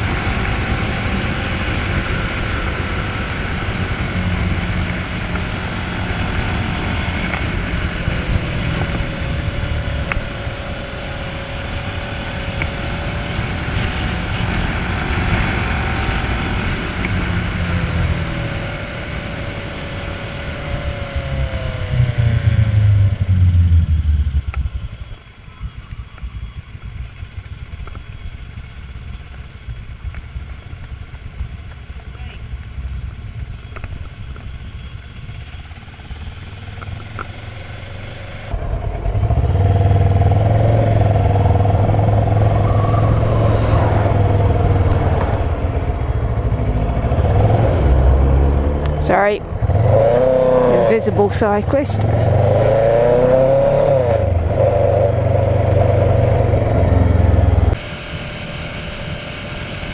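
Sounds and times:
wind noise: 0:00.0 - 0:34.8
motorcycle engine: 0:00.0 - 0:59.9.

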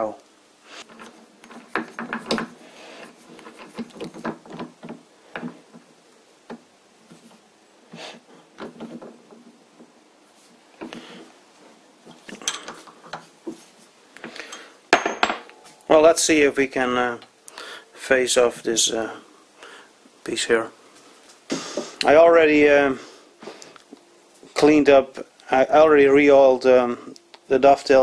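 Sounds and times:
metal clicks and knocks: 0:00.9 - 0:02.6, 0:03.4 - 0:05.9, 0:12.1 - 0:13.3.

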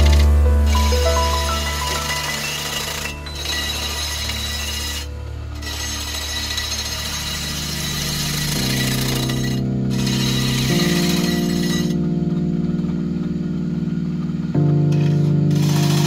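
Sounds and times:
lathe tool scraping wood: 0:00.0 - 0:12.0
background music: 0:00.0 - 0:16.0.

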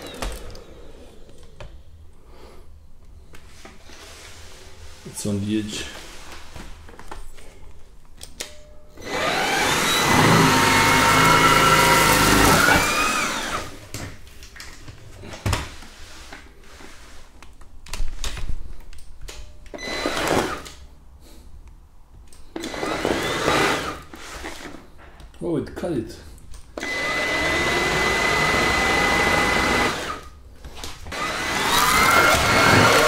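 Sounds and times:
stick vacuum whine: 0:00.0 - 0:01.7, 0:09.0 - 0:13.8, 0:22.6 - 0:24.7, 0:26.8 - 0:30.3, 0:31.1 - 0:33.0.

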